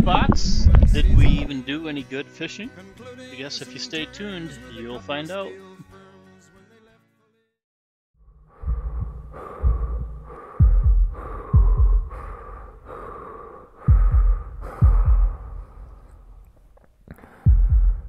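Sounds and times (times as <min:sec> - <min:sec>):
heartbeat thumps: 0:00.0 - 0:01.5, 0:08.4 - 0:16.4, 0:17.3 - 0:18.0
pulsing hum: 0:08.2 - 0:16.5.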